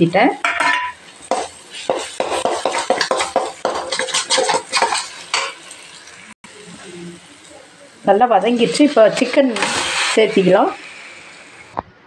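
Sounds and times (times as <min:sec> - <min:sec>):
metal spatula scraping a steel pan: 0:00.6 - 0:05.7, 0:08.9 - 0:10.8.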